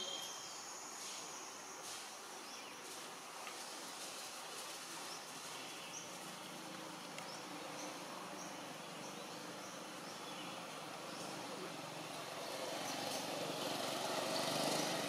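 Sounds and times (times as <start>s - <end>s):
faint high chirps: 0.0s - 1.7s.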